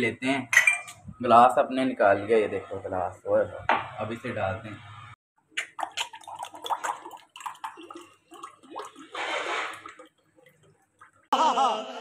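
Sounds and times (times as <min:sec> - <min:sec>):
juice pouring into a glass: 0:05.8 - 0:10.8.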